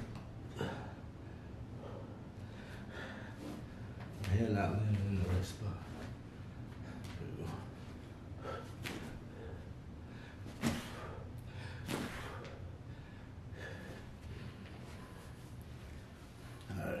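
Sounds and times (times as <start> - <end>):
man breathing hard: 0.5 - 4.0, 8.4 - 15.4.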